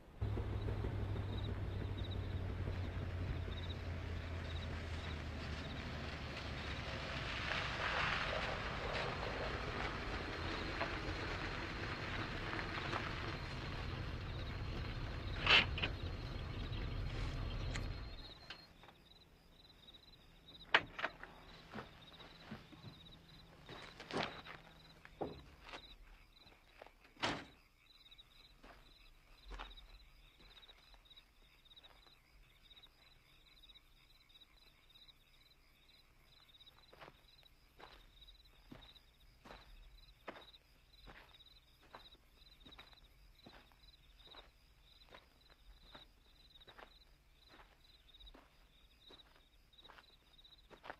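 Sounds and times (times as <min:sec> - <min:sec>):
car engine running: 0:00.0 - 0:07.5, 0:08.4 - 0:18.7
crickets chirping: 0:00.0 - 0:50.9
footsteps: 0:21.0 - 0:27.0.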